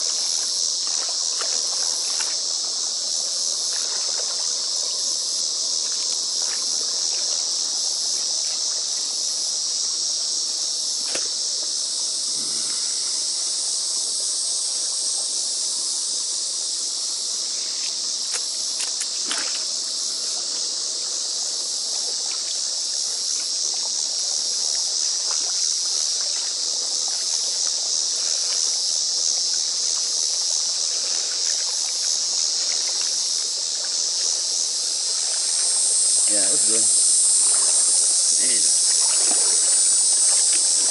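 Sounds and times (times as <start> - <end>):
rake splashing in pond water: 0.0 - 9.0, 10.9 - 11.6, 18.2 - 20.0, 24.9 - 28.9, 29.8 - 40.9
insects singing: 0.0 - 40.9.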